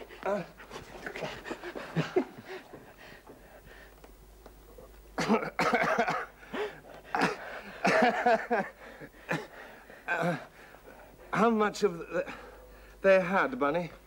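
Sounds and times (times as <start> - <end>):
men laughing heartily: 1.0 - 3.3, 7.4 - 9.2.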